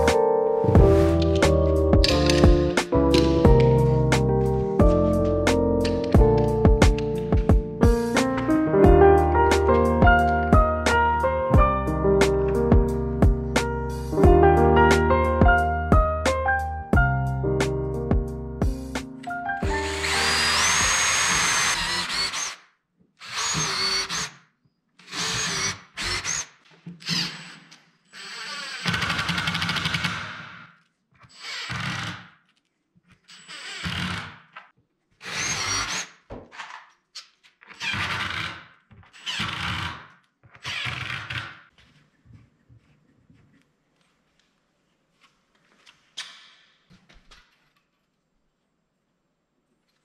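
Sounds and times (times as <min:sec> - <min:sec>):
drill motor whine: 0:19.6 - 0:22.6, 0:23.2 - 0:24.3, 0:28.2 - 0:28.9
cordless drill driving screws: 0:19.7 - 0:22.6, 0:23.2 - 0:24.4, 0:25.0 - 0:30.5, 0:31.3 - 0:32.3, 0:33.3 - 0:34.6, 0:35.2 - 0:36.8, 0:37.7 - 0:40.0, 0:40.6 - 0:41.6.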